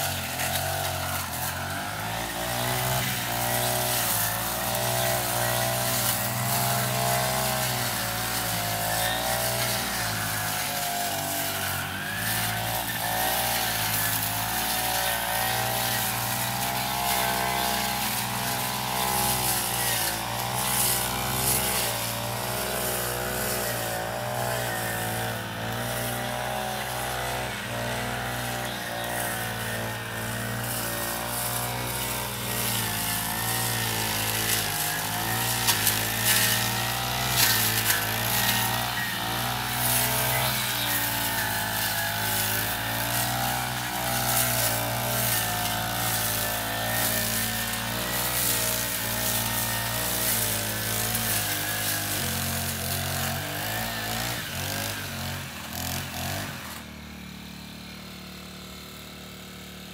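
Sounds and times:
brush cutter running: 0:00.0 - 0:59.9.

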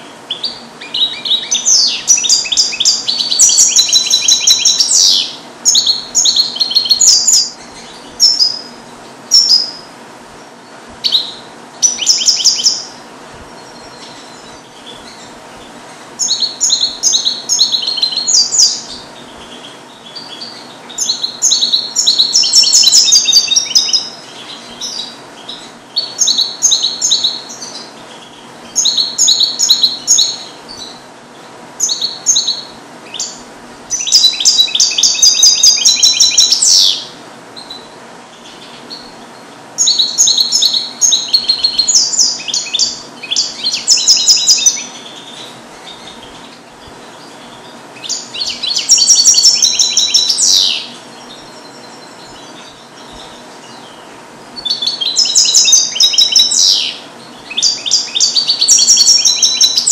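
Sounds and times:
goldfinch singing: 0:00.0 - 0:09.9, 0:10.7 - 0:59.9.

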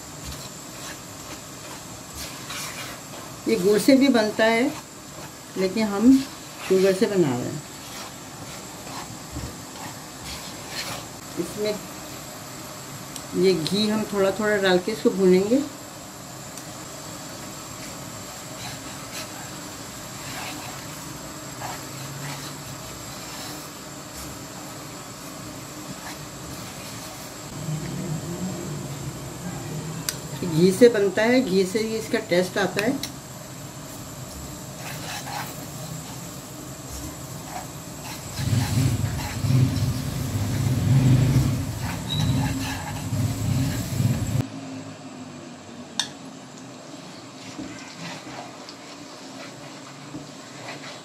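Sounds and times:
spatula scraping a pan: 0:00.2 - 0:11.3, 0:17.8 - 0:27.5, 0:34.7 - 0:44.4, 0:47.0 - 0:51.0.

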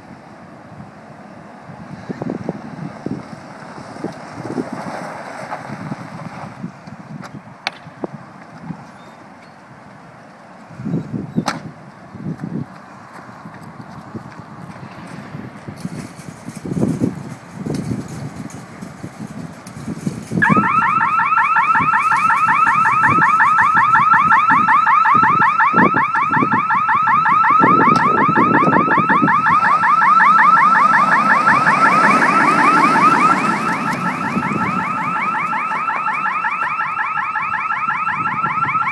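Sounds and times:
alarm siren warbling: 0:20.4 - 0:38.9.

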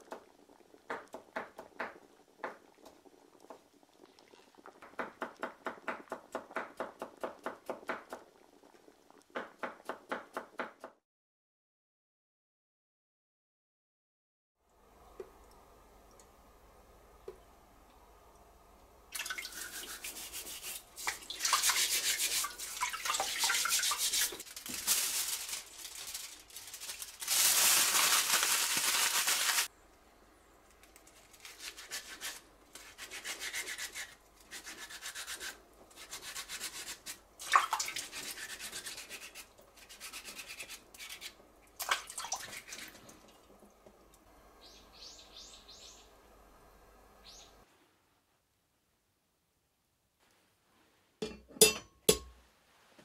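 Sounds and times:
scrubbing and scraping by hand: 0:19.5 - 0:29.7, 0:31.2 - 0:37.2, 0:37.8 - 0:41.4.

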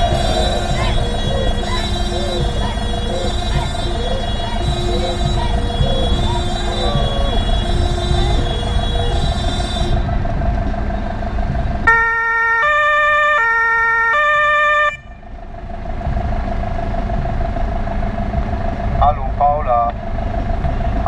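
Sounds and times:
fire engine two-tone horn: 0:00.0 - 0:10.7, 0:11.9 - 0:15.3
vehicle engine running: 0:00.0 - 0:21.0.

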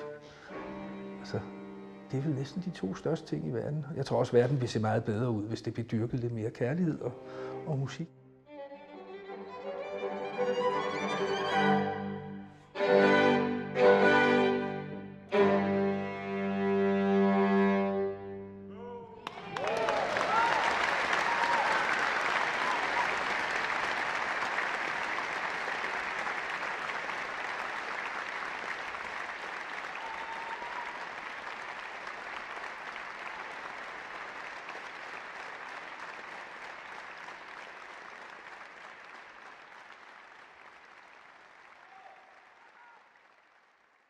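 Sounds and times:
audience applauding: 0:19.2 - 0:44.0.

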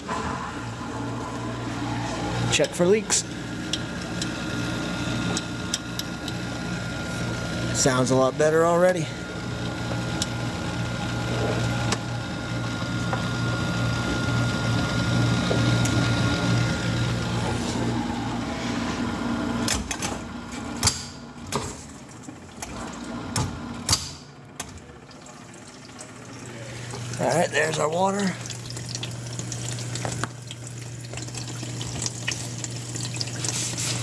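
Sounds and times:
dishwasher motor humming: 0:00.0 - 0:34.0
water running: 0:24.8 - 0:34.0.

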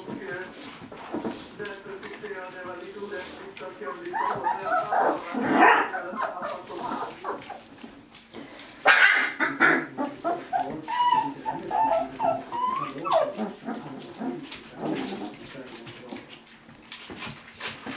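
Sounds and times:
puppies whining: 0:03.4 - 0:17.9
puppies yipping: 0:03.6 - 0:08.2, 0:08.8 - 0:15.4.

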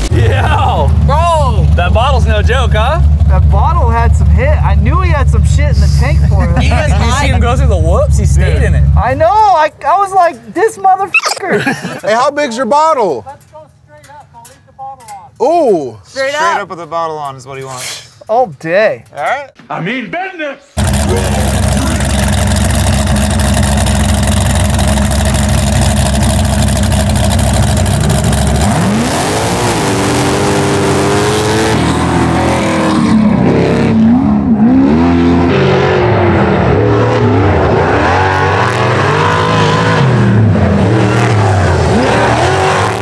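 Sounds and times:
race engines revving: 0:00.0 - 0:09.2, 0:20.8 - 0:43.0.

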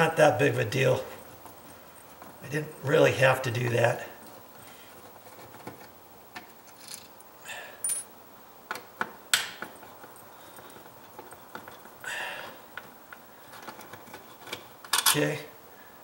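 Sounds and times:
soft rustle: 0:00.8 - 0:07.1.

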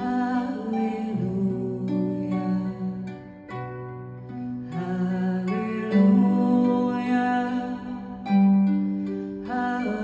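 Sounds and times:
woman singing a slow melody: 0:00.0 - 0:03.4, 0:04.7 - 0:08.3, 0:09.4 - 0:10.0
plucked harp notes: 0:00.0 - 0:10.0.

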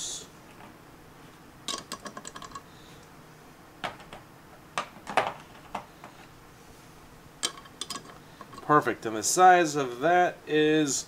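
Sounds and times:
metal sockets clicking and clinking: 0:01.7 - 0:02.6, 0:07.4 - 0:08.7.

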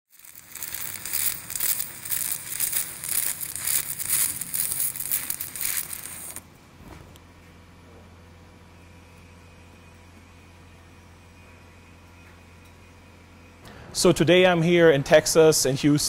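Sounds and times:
welding arc crackling: 0:00.0 - 0:06.4.

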